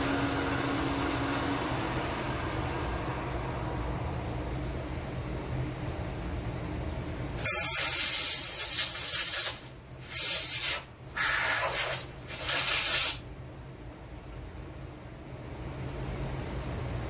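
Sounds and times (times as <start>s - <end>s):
compressed air blow gun hissing: 7.4s - 13.2s.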